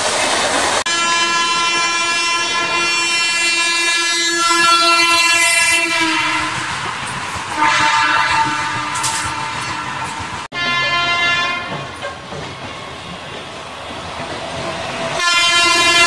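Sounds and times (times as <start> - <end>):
passing train rushing: 0.0 - 16.0
train horn blast: 0.9 - 6.9, 7.5 - 11.9, 15.2 - 16.0.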